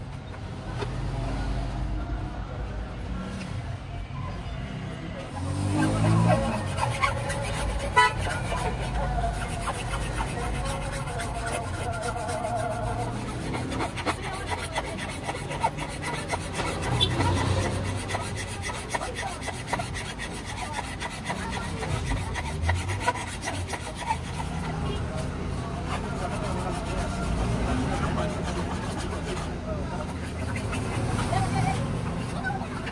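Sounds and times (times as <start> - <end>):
metal blade scraping plastic: 5.7 - 25.0.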